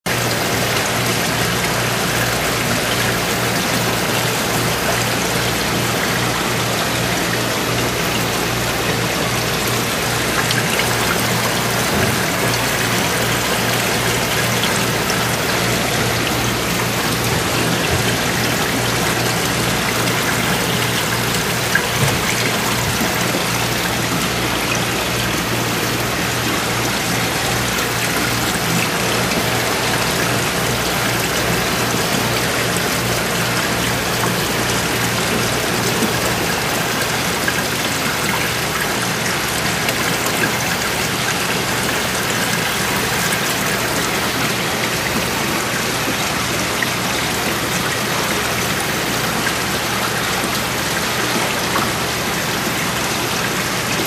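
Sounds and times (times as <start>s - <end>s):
pump hum: 0.0s - 54.0s
water trickling in aquarium: 0.1s - 54.0s.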